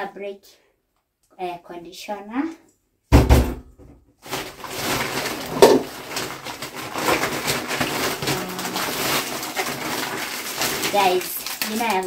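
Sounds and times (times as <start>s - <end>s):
thump: 3.1s - 4.0s
plastic bag rustling: 4.2s - 12.0s.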